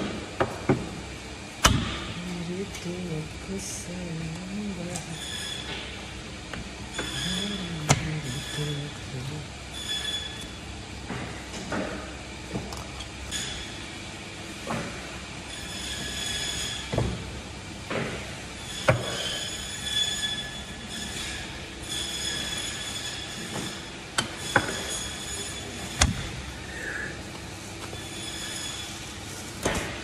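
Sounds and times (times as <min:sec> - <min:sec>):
high-pitched machine whine: 0:01.8 - 0:12.0, 0:15.4 - 0:29.5
low hum: 0:01.9 - 0:09.7.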